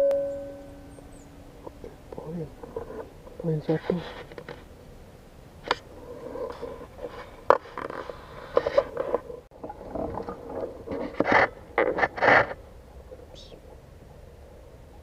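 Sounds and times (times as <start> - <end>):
rustling and scraping: 1.6 - 4.7, 5.6 - 13.2.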